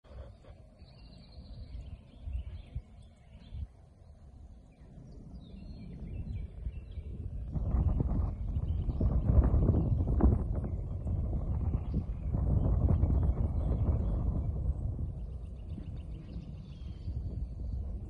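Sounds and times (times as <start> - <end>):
wind rumbling on microphone: 0.0 - 18.0
birds chirping: 0.1 - 18.0.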